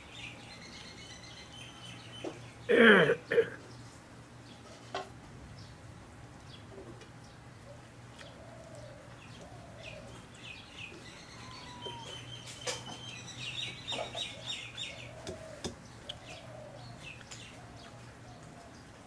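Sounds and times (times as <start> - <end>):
birds chirping: 0.0 - 4.9, 5.5 - 19.0.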